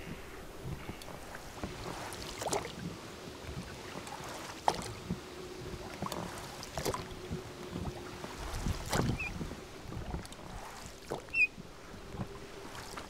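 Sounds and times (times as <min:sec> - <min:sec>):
oar blades splashing in water: 0:00.8 - 0:02.7, 0:08.4 - 0:09.4, 0:10.0 - 0:11.5.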